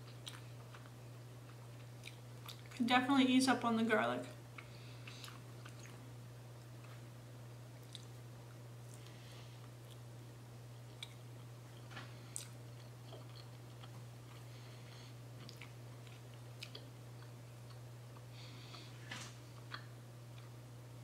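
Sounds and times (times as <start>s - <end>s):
person chewing food: 0.0s - 2.8s, 4.5s - 7.1s, 7.7s - 10.1s, 10.8s - 18.9s, 19.5s - 20.6s
steady low hum: 0.0s - 21.0s.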